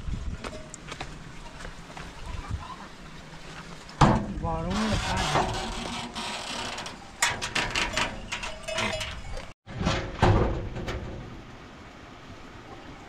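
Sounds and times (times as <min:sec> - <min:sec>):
metal sheet door rattling: 0:04.0 - 0:11.4.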